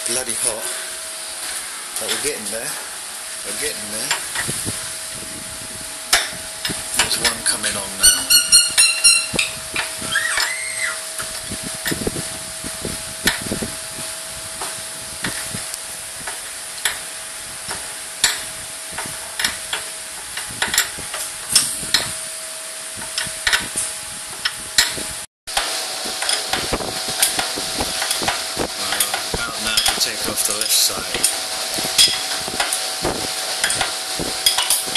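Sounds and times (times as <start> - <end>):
steady hiss: 10.4 - 34.9.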